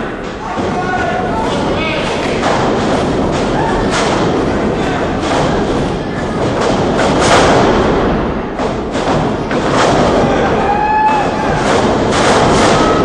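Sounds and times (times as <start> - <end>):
crowd shouting and chatter: 0.0 - 7.2, 7.9 - 13.0
wrestlers thudding on ring mat: 0.2 - 13.0.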